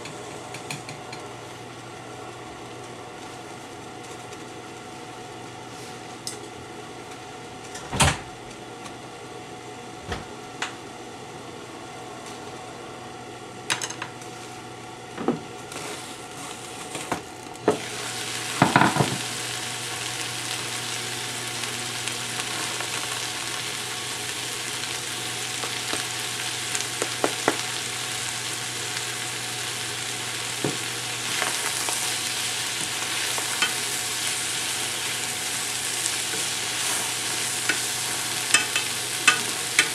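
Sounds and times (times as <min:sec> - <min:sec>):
low hum of covered pan: 0:08.6 - 0:39.9
greens sizzling in a pan: 0:15.6 - 0:39.9.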